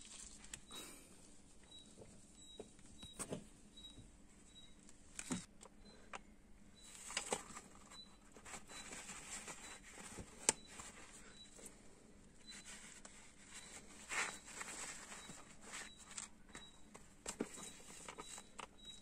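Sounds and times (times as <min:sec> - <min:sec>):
soft rustling: 0:06.9 - 0:11.7, 0:12.3 - 0:16.3.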